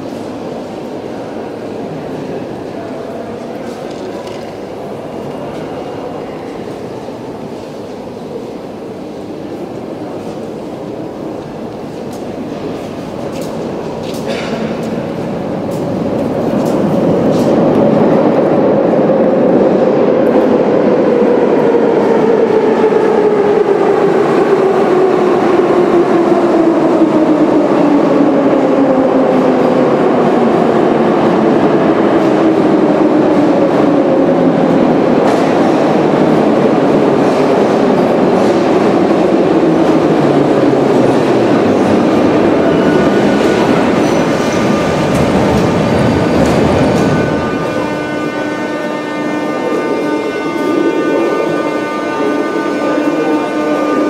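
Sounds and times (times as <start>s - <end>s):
wheel and rail noise: 32.2s - 49.4s.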